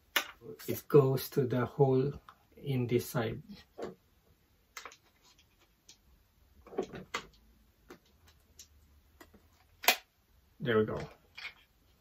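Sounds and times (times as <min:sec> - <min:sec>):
light plastic clicks and knocks: 0:06.6 - 0:09.7.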